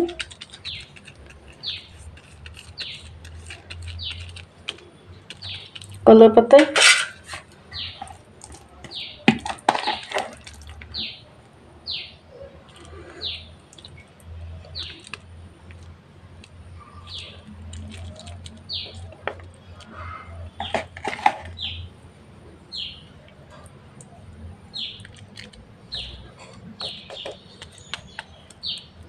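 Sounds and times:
spoon scraping plastic bowl: 0.0s - 6.0s, 6.6s - 8.6s, 20.6s - 21.6s
bird chirping: 0.0s - 6.4s, 7.2s - 15.9s, 16.5s - 22.0s, 22.7s - 29.0s.

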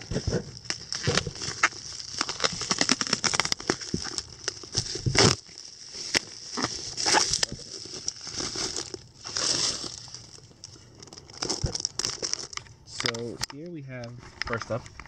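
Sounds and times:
packing rustles: 0.0s - 13.4s
bubble wrap and paper crackling: 0.0s - 15.0s.

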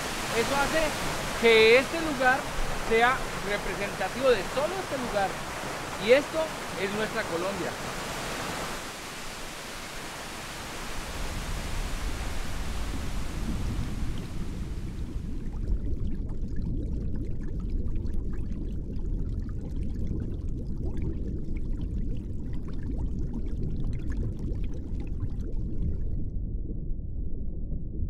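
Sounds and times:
falling water hiss: 0.0s - 15.3s
muffled underwater churning: 0.0s - 27.7s
bubble pops: 15.2s - 26.2s.

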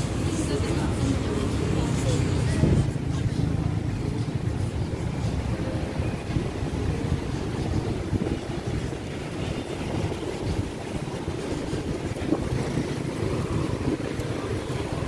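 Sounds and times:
city street traffic: 0.0s - 15.0s
wind rumbling on microphone: 0.0s - 15.0s.

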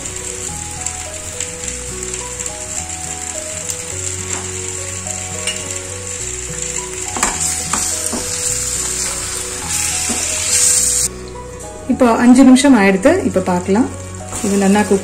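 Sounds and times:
tomatoes sizzling in hot oil: 0.0s - 15.0s.

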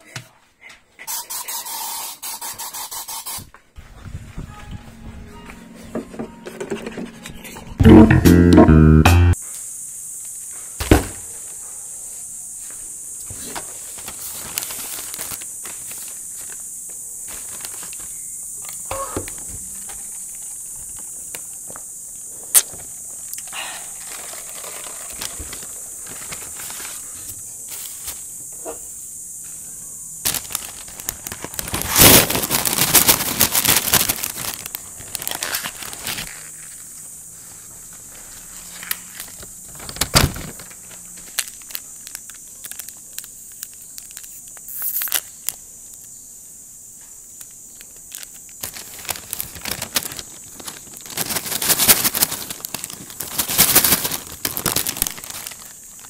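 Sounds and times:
paper packaging crinkling: 13.4s - 18.3s, 23.9s - 28.2s, 30.2s - 37.0s, 37.8s - 45.4s, 47.8s - 56.0s.

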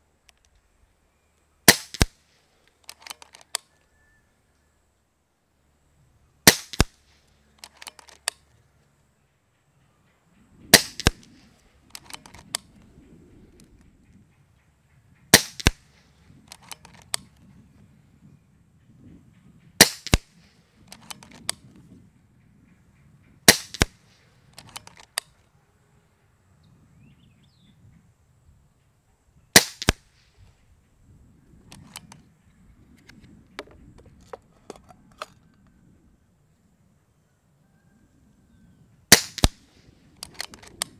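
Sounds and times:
air rifle shots: 1.6s - 3.5s, 6.4s - 8.2s, 10.7s - 12.6s, 15.3s - 17.2s, 19.8s - 21.6s, 23.4s - 25.2s, 29.5s - 30.3s, 39.1s - 40.9s
rifle reloading clicks: 1.7s - 3.7s, 6.5s - 8.6s, 10.7s - 12.8s, 15.4s - 17.4s, 19.8s - 21.7s, 23.5s - 25.4s, 31.7s - 32.2s, 39.1s - 40.9s
wind rumble on microphone: 10.2s - 25.5s, 26.4s - 37.0s, 37.6s - 40.9s.

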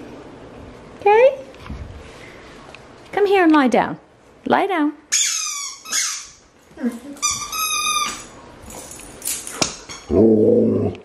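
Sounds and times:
rubber chicken toy squeaking: 5.1s - 6.4s, 7.2s - 8.2s
low moaning voice: 10.1s - 11.0s.

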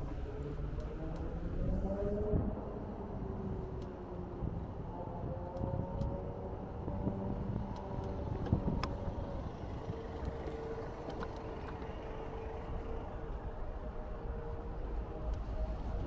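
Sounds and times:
faint engine hum: 0.0s - 16.0s
cars driving by: 6.0s - 16.0s.

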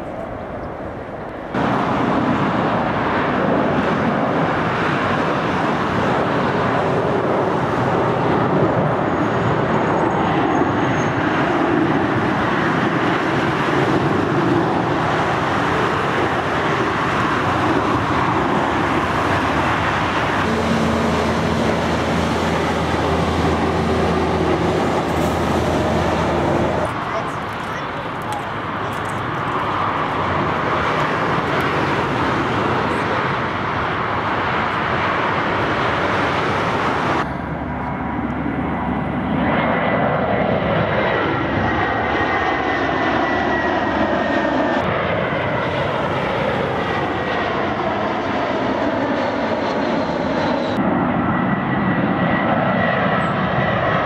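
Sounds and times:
jet engines roaring: 0.0s - 54.0s
low multi-tone drone: 15.7s - 54.0s.

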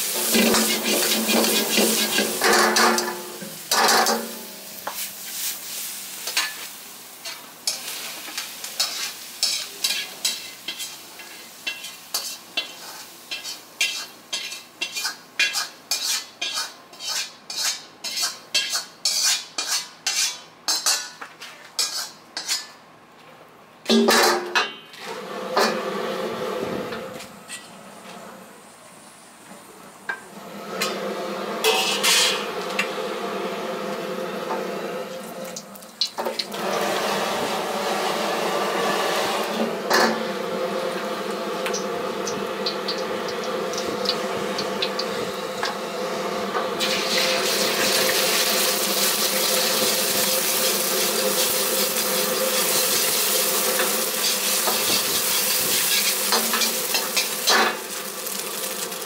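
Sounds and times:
gas burner roaring: 0.0s - 15.1s, 24.9s - 59.0s
eggs sizzling in hot oil: 0.0s - 19.9s, 41.0s - 45.9s, 46.8s - 59.0s.

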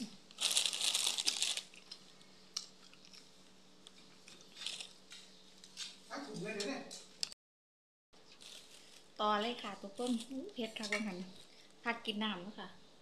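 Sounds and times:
person chewing crunchy food: 0.3s - 5.8s.

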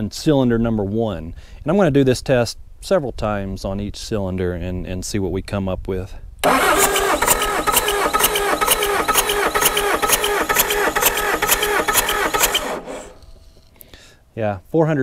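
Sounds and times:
starter cranking diesel engine: 6.4s - 13.7s.

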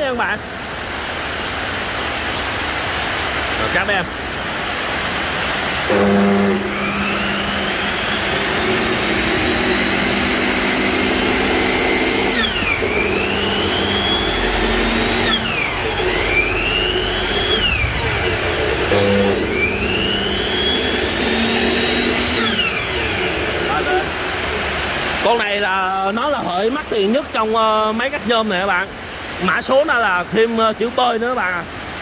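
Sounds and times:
miter saw motor whine: 5.9s - 24.8s.

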